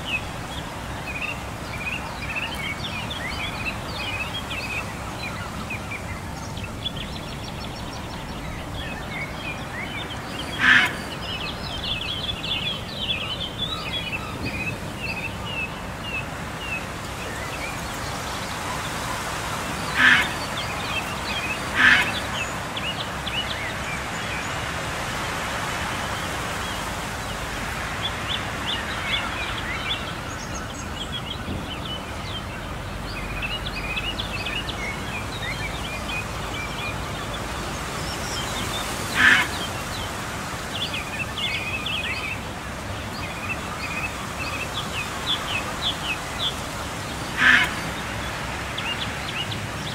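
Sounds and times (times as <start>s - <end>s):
birds chirping: 0.0s - 49.9s
outdoor background hiss: 0.0s - 49.9s
loud single bird calls: 21.8s - 22.2s.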